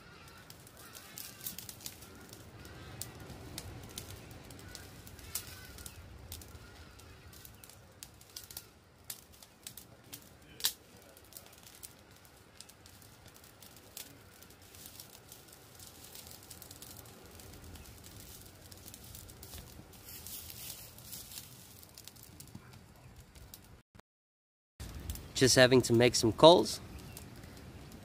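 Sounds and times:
faint birds calling: 0.0 - 10.7, 26.8 - 28.0
twig fire crackling and popping: 0.0 - 23.8, 24.8 - 28.0.

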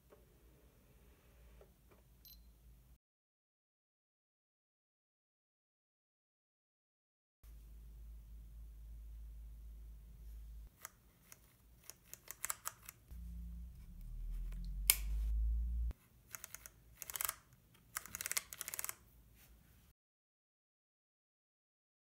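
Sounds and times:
low handling rumble: 13.1 - 15.9
camera controls clicking: 16.3 - 19.0.

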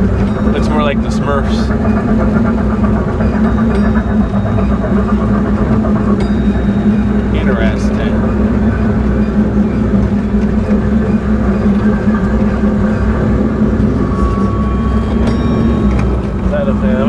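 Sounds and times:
ride train mechanical drone: 0.0 - 17.0
thin high steady tone: 0.0 - 17.0.

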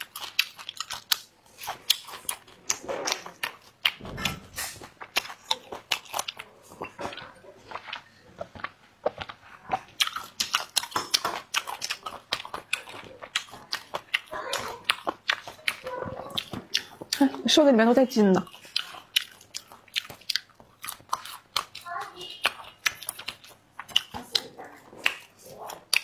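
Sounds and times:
wet crunchy chewing: 0.0 - 26.0.

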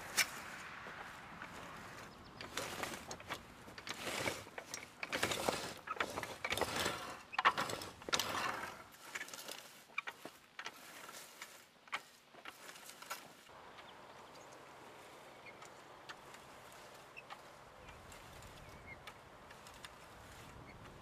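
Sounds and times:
hoe scraping through dry soil: 0.0 - 21.0
hoe frame clicking and rattling: 2.4 - 13.4, 15.6 - 21.0.

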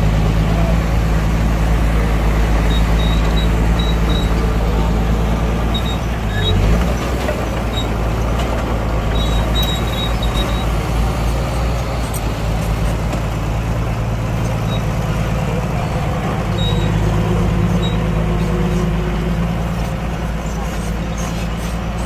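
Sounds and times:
heavy machinery diesel engines: 0.0 - 22.0.

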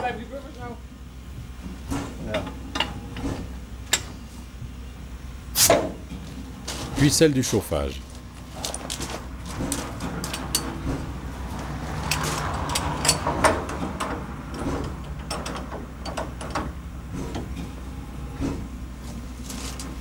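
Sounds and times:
steady low hum: 0.0 - 20.0
metal clanks and clicks: 1.9 - 4.2, 8.6 - 11.1, 12.0 - 17.7.

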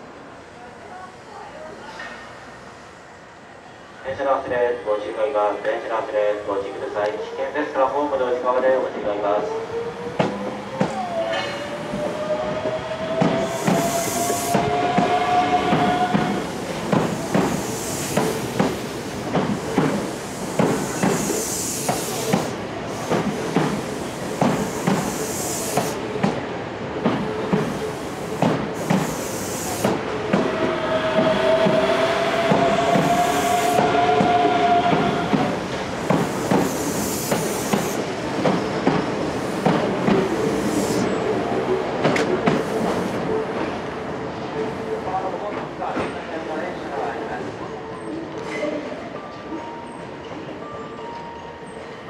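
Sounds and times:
train whine: 0.0 - 45.4
train wheels clacking over rail joints: 13.2 - 26.4, 27.0 - 31.8, 32.4 - 41.1.

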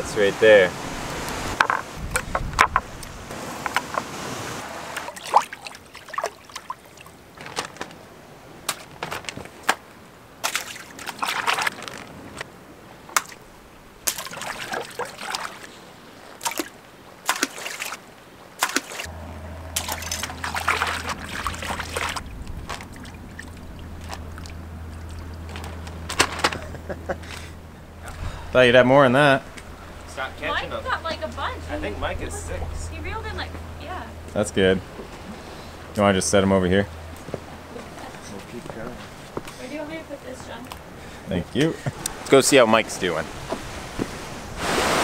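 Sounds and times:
water sloshing and trickling: 0.0 - 45.0
wet handling of fish: 19.8 - 27.6.

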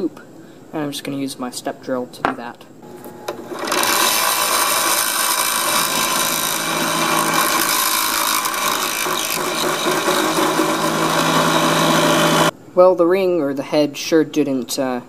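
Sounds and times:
drill press motor hum: 2.8 - 12.5
drill bit cutting metal: 3.4 - 12.5.

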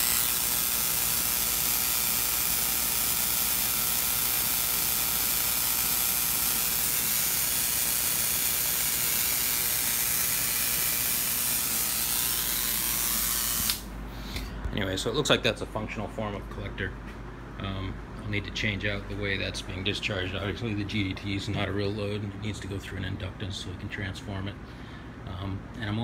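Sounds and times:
electric sparks hissing: 0.0 - 13.9.

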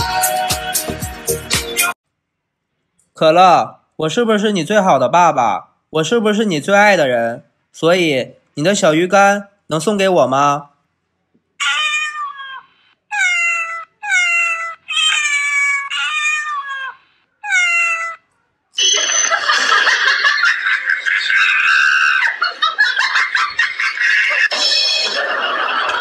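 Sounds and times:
recorded cat meows: 11.6 - 18.4.

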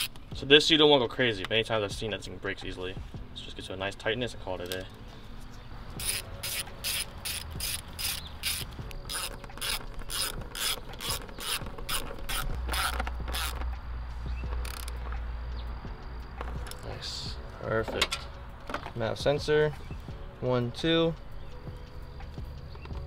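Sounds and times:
hand ratchet clicking: 0.0 - 0.2, 6.0 - 13.9, 14.5 - 15.1.

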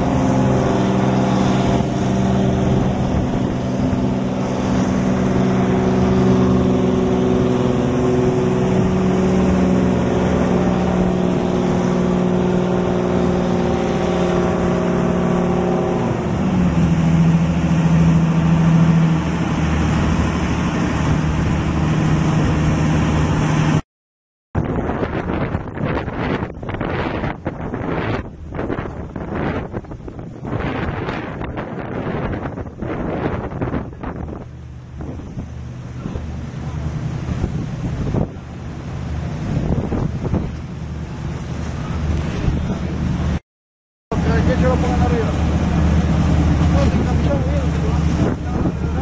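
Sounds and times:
diesel engine running: 0.0 - 23.8, 33.4 - 43.4, 44.1 - 49.0
wind buffeting microphone: 0.0 - 23.8, 24.6 - 43.4, 44.1 - 49.0.

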